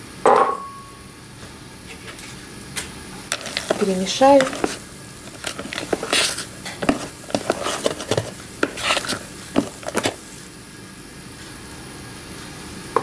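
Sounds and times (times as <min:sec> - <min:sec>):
metal spoon scraping bowl: 0:03.3 - 0:10.2.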